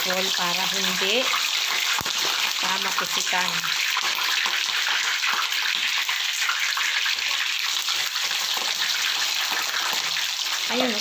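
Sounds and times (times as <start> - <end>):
oil sizzling and crackling: 0.0 - 11.0.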